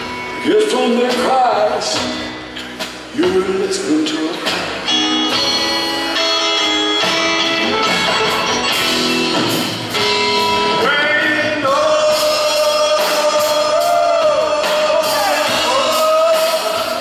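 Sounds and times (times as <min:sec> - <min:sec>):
live rock band music: 0:00.0 - 0:17.0
man singing: 0:00.3 - 0:02.2, 0:03.1 - 0:04.7, 0:10.6 - 0:17.0.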